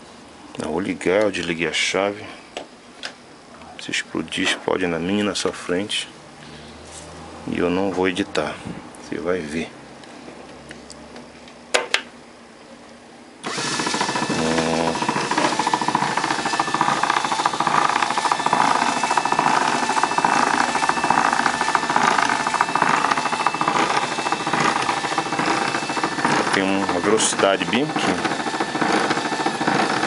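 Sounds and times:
gears and rollers rattling: 13.4s - 30.0s
machine motor whine: 13.4s - 30.0s.

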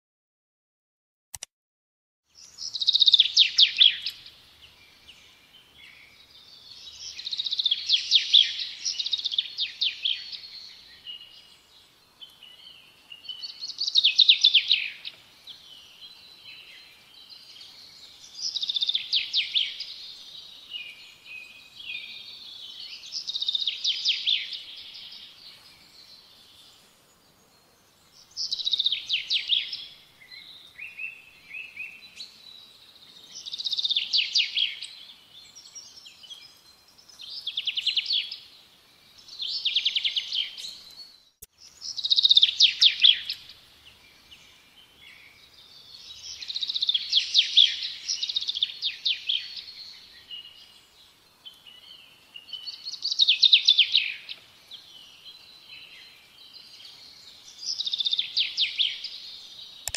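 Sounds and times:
soft bird chirps: 2.3s - 59.9s
songbird trilling: 2.4s - 4.3s.

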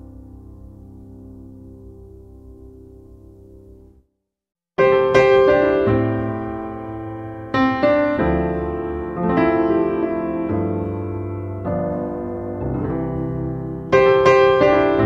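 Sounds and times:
slow piano chords: 0.0s - 4.1s, 4.8s - 15.0s.

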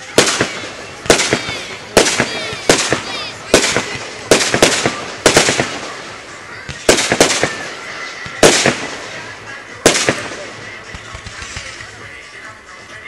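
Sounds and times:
fireworks bursting with sharp bangs: 0.0s - 12.8s.

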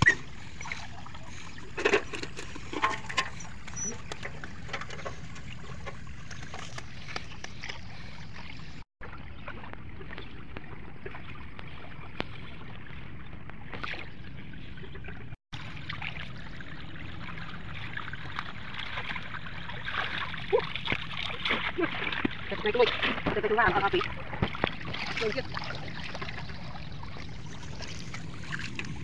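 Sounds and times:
small splashes and clicks: 0.0s - 8.8s, 18.2s - 29.0s
water trickling and sloshing: 0.0s - 29.0s.

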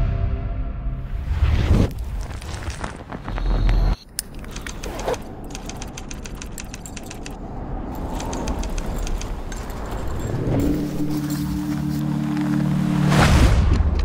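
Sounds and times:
carabiners clinking: 4.0s - 12.4s.

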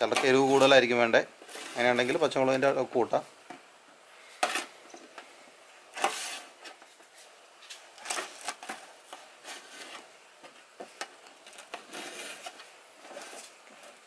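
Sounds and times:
knife tapping and scraping metal: 0.0s - 0.6s.

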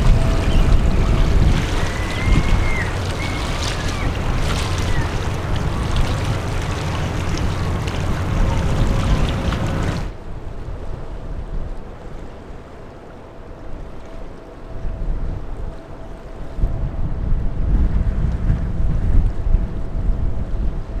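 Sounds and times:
thin high whistling glides: 0.0s - 6.3s
low harbour rumble: 0.0s - 21.0s
wind rumbling on microphone: 0.0s - 21.0s.

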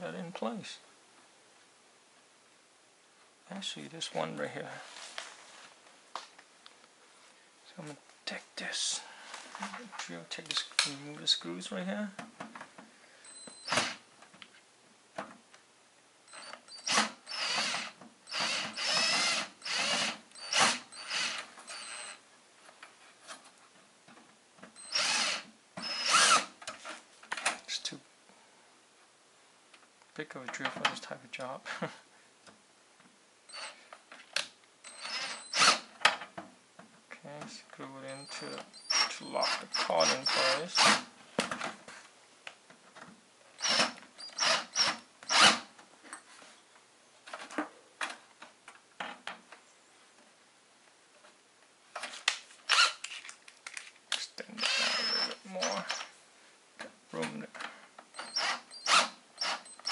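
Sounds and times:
power drill whirring: 13.2s - 14.0s, 16.3s - 22.2s, 24.8s - 26.6s, 33.5s - 33.8s, 34.8s - 35.9s, 38.2s - 41.1s, 43.6s - 45.7s, 52.7s - 53.0s, 54.6s - 56.1s, 58.1s - 59.9s.

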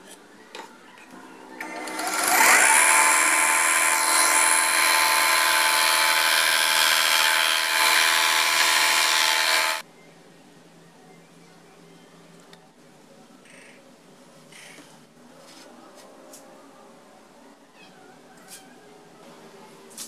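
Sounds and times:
belt sander motor hum: 1.6s - 9.8s
wood sanding hiss: 2.2s - 9.8s.

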